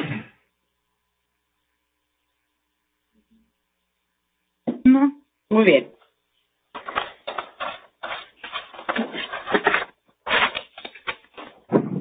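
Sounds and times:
rustling and handling noises: 6.3s - 11.8s.

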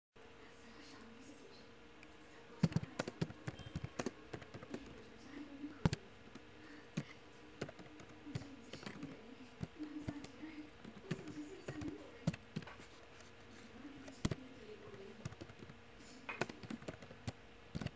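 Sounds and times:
keyboard typing clicks: 2.6s - 5.1s, 5.7s - 13.3s, 14.0s - 17.9s.

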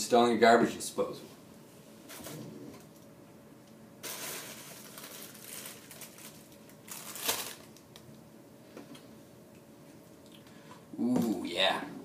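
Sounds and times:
bottles and plastic bags rustling: 4.0s - 7.8s.

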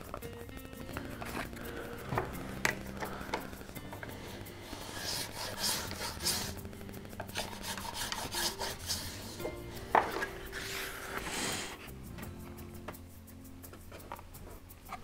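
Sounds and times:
hand tool scraping wood: 1.0s - 6.6s, 7.2s - 11.9s.

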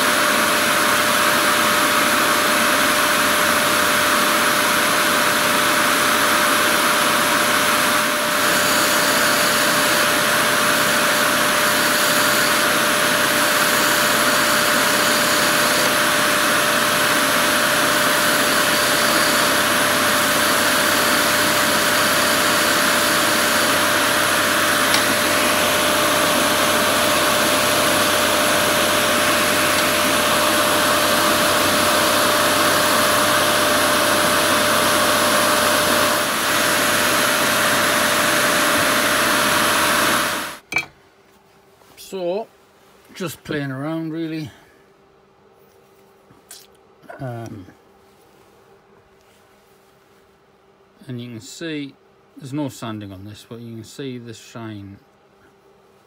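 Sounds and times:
lathe knife shaving wood: 0.0s - 40.6s
wood lathe running: 0.0s - 40.6s.

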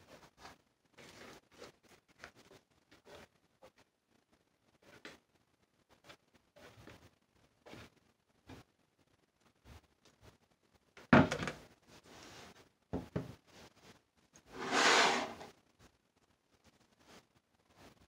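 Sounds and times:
mold sliding across counter: 14.5s - 15.5s.

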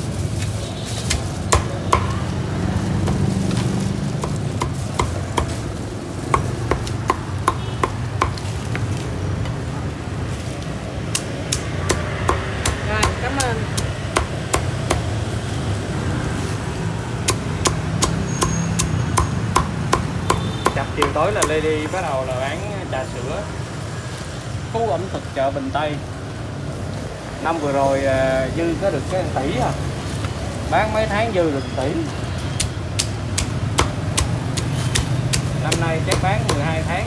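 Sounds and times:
cleaver chopping on wooden board: 1.1s - 2.3s, 4.2s - 5.6s, 6.3s - 8.8s, 11.1s - 15.1s, 17.3s - 21.7s, 32.6s - 36.9s.

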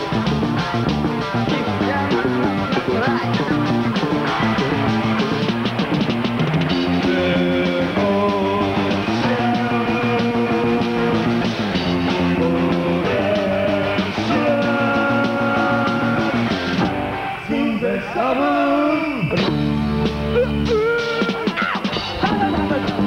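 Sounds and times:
electric guitar chords: 0.0s - 18.4s, 19.4s - 23.0s
bass guitar: 0.0s - 23.0s.

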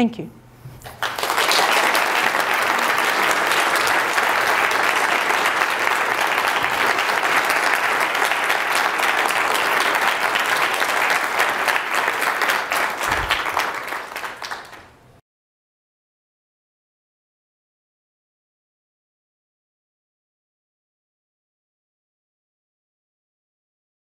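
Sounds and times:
audience applauding: 0.8s - 15.0s.

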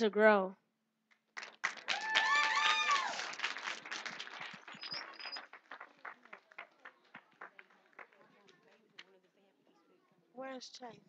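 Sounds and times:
congregation applauding: 1.4s - 8.7s.

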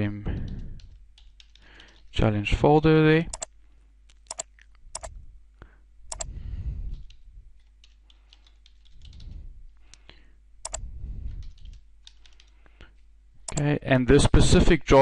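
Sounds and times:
typing on a keyboard: 0.3s - 2.2s, 6.9s - 9.4s, 10.7s - 12.6s
mouse clicks: 3.3s - 3.5s, 4.1s - 5.1s, 13.5s - 13.7s.

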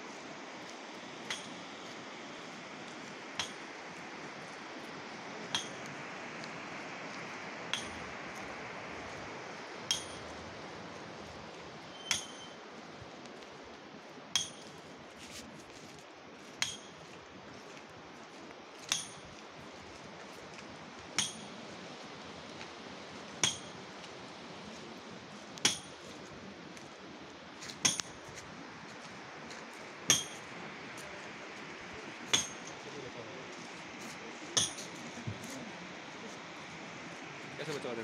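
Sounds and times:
steady background hiss: 0.0s - 38.0s
short ringing clink: 12.0s - 12.6s.

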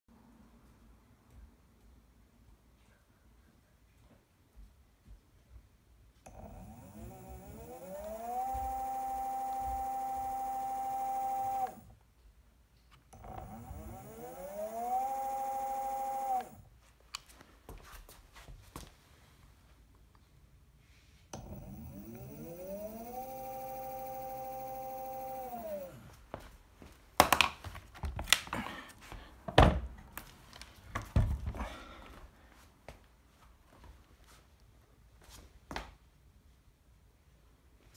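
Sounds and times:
electric motor whine: 6.3s - 11.9s, 13.2s - 16.6s, 21.4s - 26.1s.

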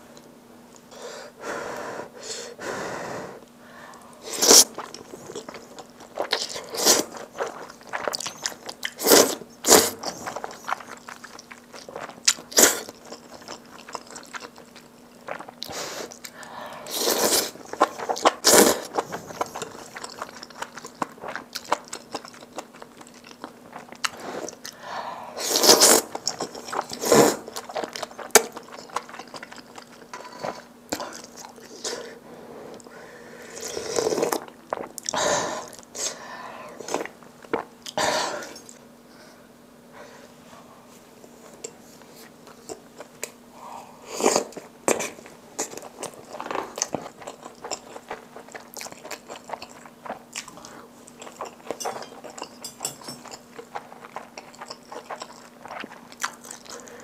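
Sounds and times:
faint steady hum: 0.0s - 57.0s
noodles slurped and chewed: 4.3s - 24.8s, 25.4s - 32.1s, 44.1s - 57.0s.

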